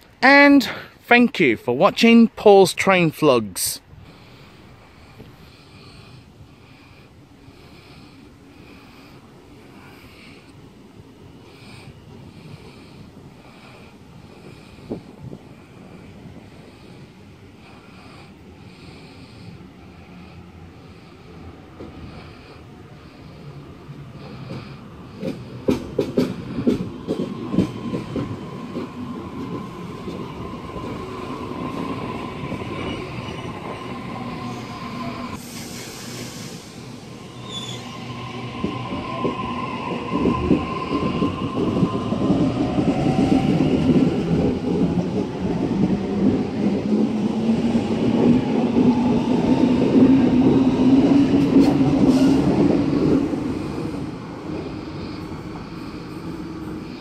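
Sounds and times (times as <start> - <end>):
train wheel clicks: 25.2 - 30.2
short hiss: 35.4 - 36.9.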